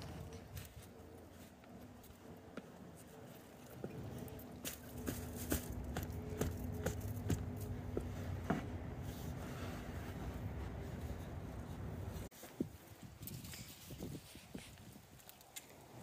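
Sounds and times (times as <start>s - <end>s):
steady low hum: 0.0s - 12.3s
digging fork crunching into soil: 4.3s - 8.0s.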